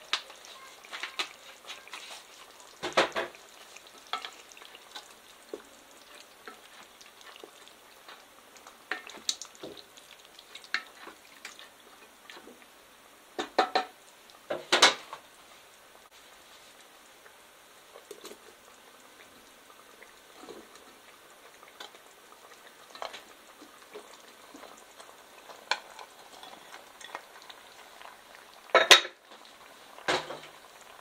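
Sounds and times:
wooden spatula scraping pot: 0.3 - 12.6
spatula knocking pot: 13.4 - 13.9.

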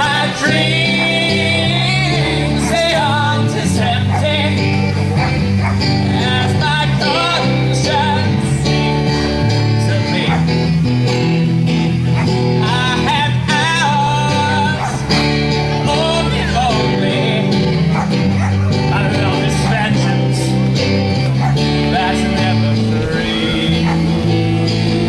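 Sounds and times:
acoustic guitar: 0.0 - 25.0
drums: 0.0 - 25.0
electric bass: 0.0 - 25.0.

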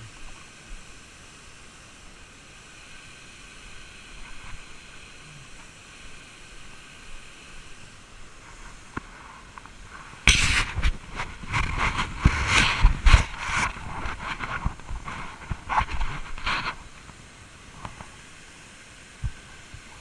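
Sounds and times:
shallow creek and small waterfall: 0.0 - 20.0
camera jostling on microphone: 10.2 - 16.8.

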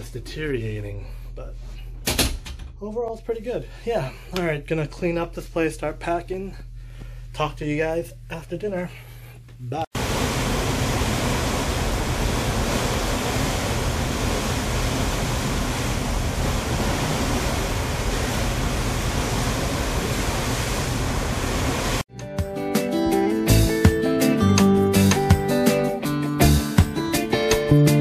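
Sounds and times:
rushing wind and sea water: 10.0 - 22.1.

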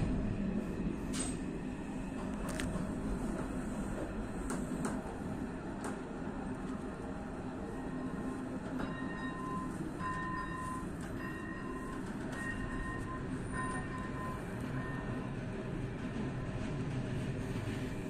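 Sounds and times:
train wheels rumbling: 0.0 - 18.0.

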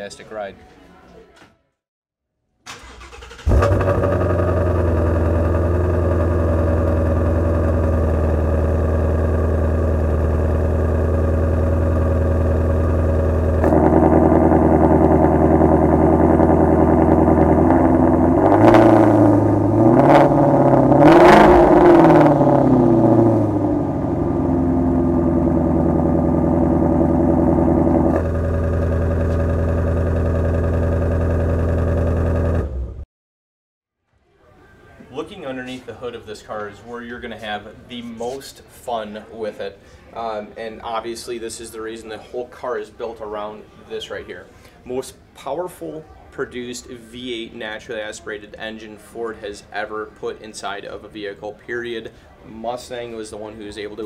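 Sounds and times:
car engine idling: 2.8 - 33.0
car engine revving: 2.8 - 33.0.

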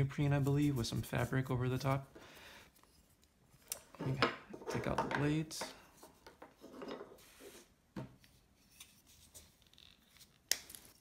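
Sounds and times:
rubbing and rustling of sheaths: 5.6 - 11.0.

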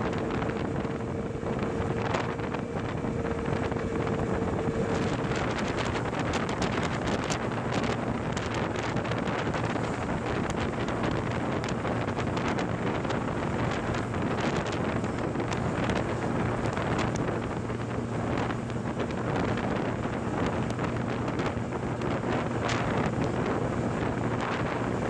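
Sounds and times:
moped engine humming: 0.0 - 6.7
wind noise on microphone: 0.0 - 25.0.

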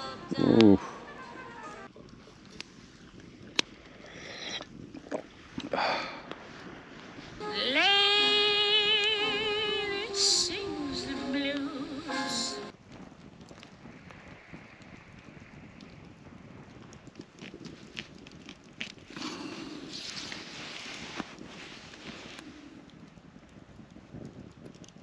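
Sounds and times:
person singing long held note: 0.0 - 1.1, 7.4 - 12.7
campfire crackling: 0.0 - 25.0.

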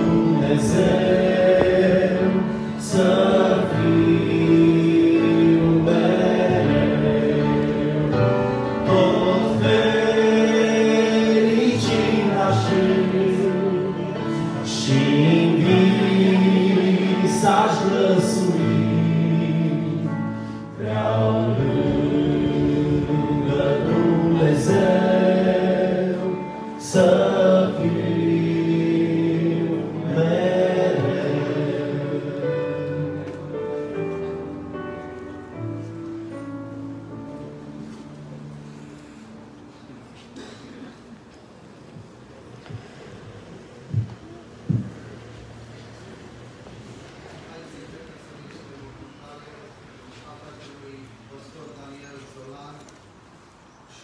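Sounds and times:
choir singing a hymn: 0.0 - 40.9.

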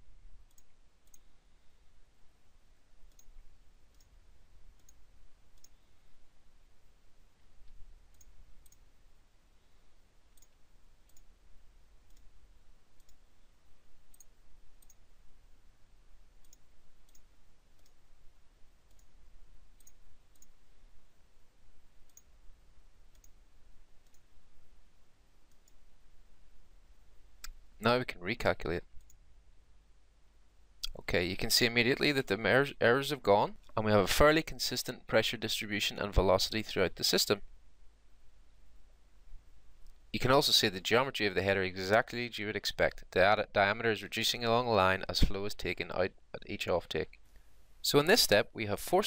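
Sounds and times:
low steady hum: 0.0 - 49.0
computer mouse clicks: 0.5 - 1.3, 3.1 - 4.2, 4.8 - 5.0, 5.6 - 5.8, 7.6 - 8.8, 10.4 - 11.3, 12.1 - 12.3, 13.0 - 13.2, 14.1 - 15.0, 16.4 - 18.0, 18.9 - 19.2, 19.8 - 20.6, 22.0 - 22.3, 23.1 - 23.4, 24.0 - 24.3, 25.5 - 25.8.

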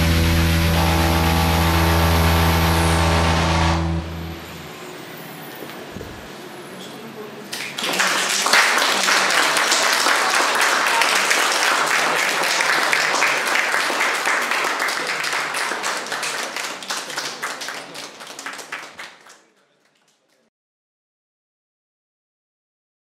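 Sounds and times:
audience applauding: 7.5 - 20.5.

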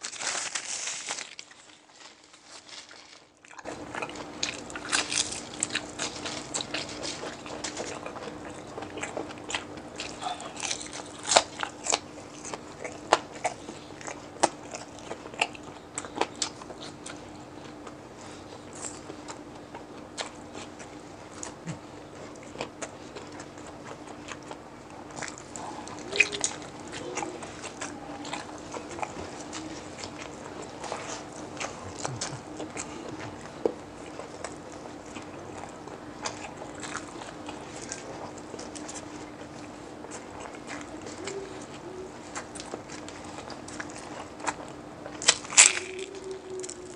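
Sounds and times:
crunchy food crunching: 0.0 - 46.9
quiet chewing: 0.0 - 46.9.

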